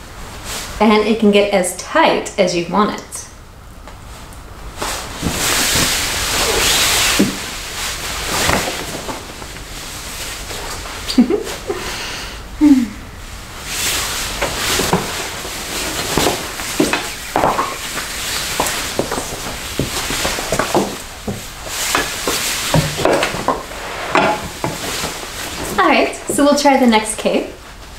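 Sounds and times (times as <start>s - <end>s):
nylon cape rustling: 4.0s - 11.8s, 13.4s - 27.9s.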